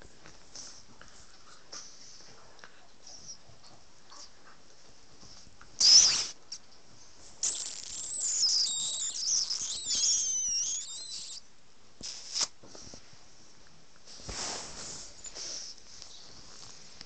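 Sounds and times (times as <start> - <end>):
puppy whining and squealing: 5.8 - 6.3, 7.6 - 11.5
puppy yipping: 7.9 - 11.4.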